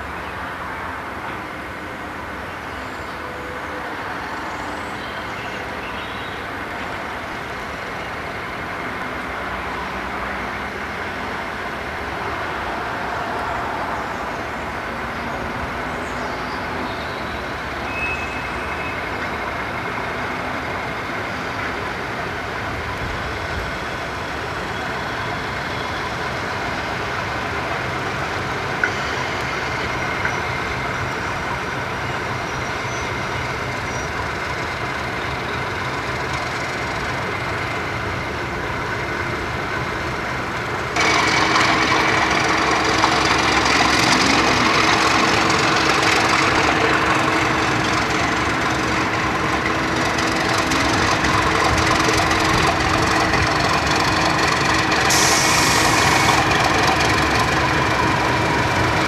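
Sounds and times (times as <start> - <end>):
diesel locomotive engine running: 0.0 - 59.0.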